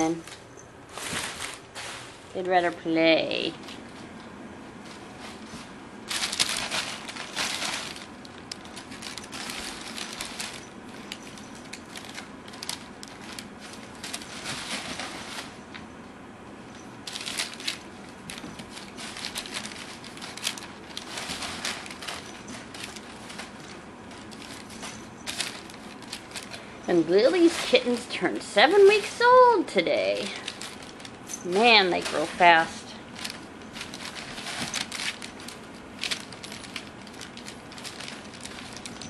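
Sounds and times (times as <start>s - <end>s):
paper crinkling and rustling: 0.0s - 2.6s, 3.4s - 16.0s, 16.7s - 39.0s.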